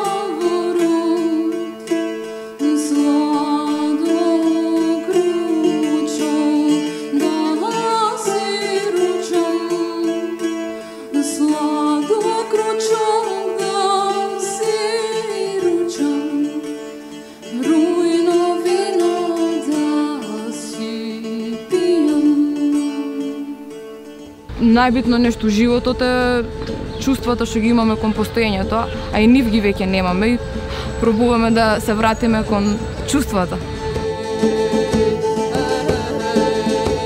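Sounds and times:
plucked strings: 0.0 - 37.0
woman singing folk melody: 0.0 - 37.0
steady drone: 24.5 - 37.0.

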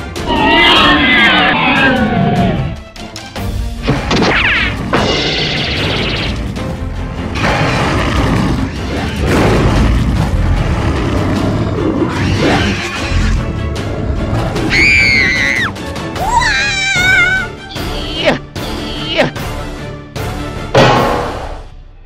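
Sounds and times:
background music: 0.0 - 22.0.

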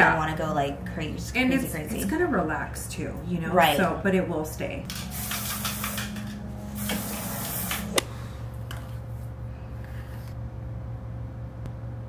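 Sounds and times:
steady low hum: 0.0 - 12.0
aerosol spray hissing: 4.9 - 8.0.

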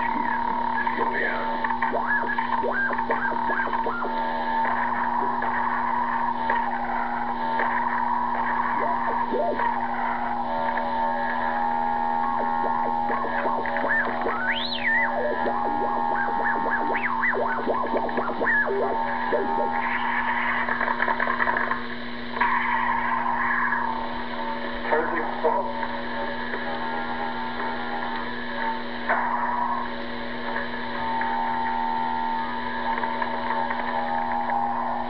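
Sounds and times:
radio hum: 0.0 - 35.0
electronic chirping pitch sweeps: 11.4 - 20.4.

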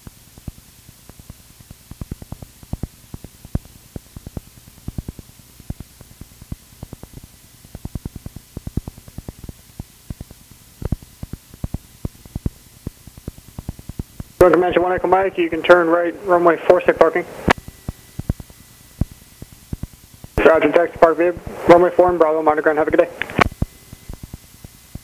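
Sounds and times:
crackling static clicks: 0.0 - 25.0
intercom hiss and hum: 0.0 - 25.0.

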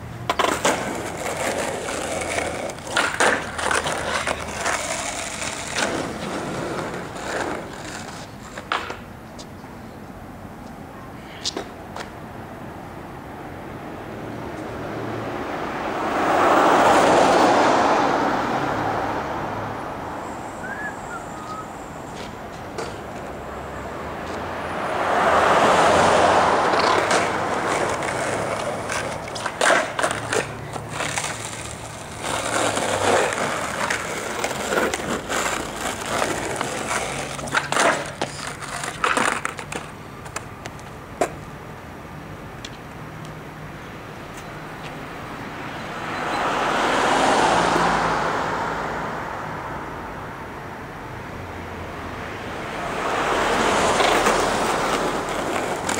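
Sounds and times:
skateboard wheels rolling on pavement: 0.0 - 55.9
skateboard clacks and knocks: 0.2 - 9.2, 26.0 - 41.4, 53.0 - 55.9.

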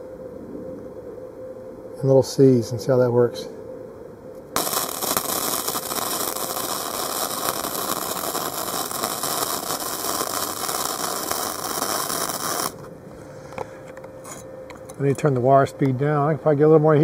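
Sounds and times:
welding arc crackling: 4.6 - 12.9.

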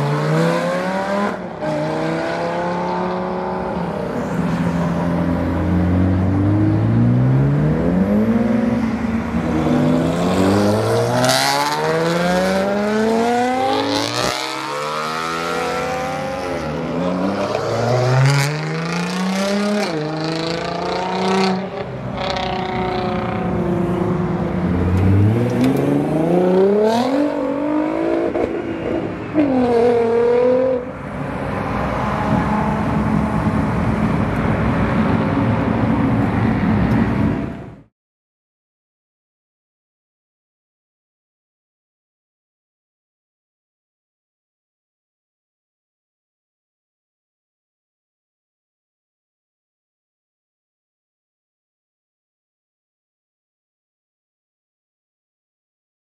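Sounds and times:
sports car engines accelerating: 0.0 - 37.3.

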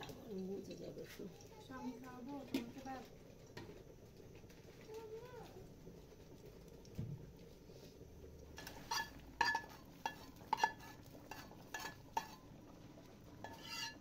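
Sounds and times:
metal spoon clinking on pot: 8.6 - 12.4, 13.4 - 14.0.

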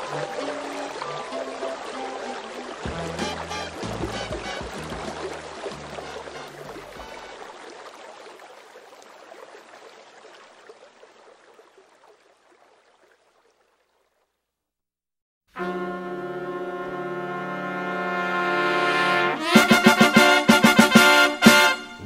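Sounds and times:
rushing water: 0.0 - 14.3, 16.1 - 22.0
low bass notes of song: 2.9 - 7.0, 15.6 - 22.0.

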